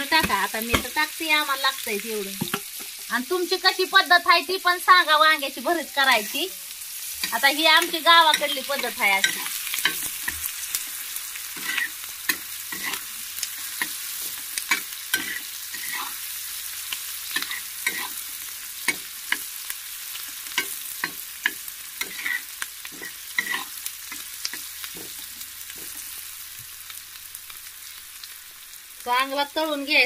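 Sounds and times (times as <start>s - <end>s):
onions sizzling in hot oil: 0.0s - 30.0s
metal spatula scraping a pan: 7.0s - 10.8s, 11.5s - 16.3s, 17.3s - 19.5s, 20.4s - 26.0s.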